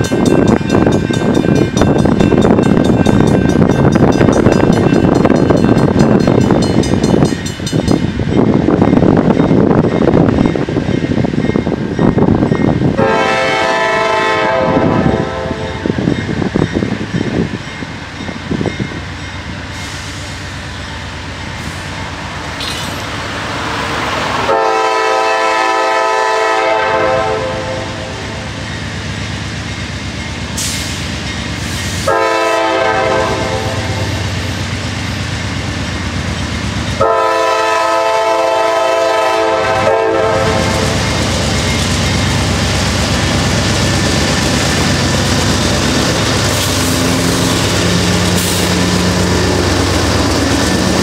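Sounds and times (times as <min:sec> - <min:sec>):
train rumbling: 0:00.0 - 0:51.0
locomotive air horn blasts: 0:13.0 - 0:15.9, 0:24.4 - 0:28.4, 0:32.0 - 0:34.1, 0:37.0 - 0:41.0.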